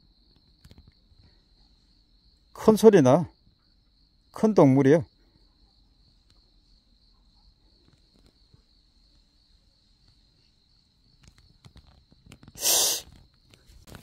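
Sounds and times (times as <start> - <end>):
crickets trilling: 0.0 - 14.0
loud breathy hiss: 12.5 - 13.2.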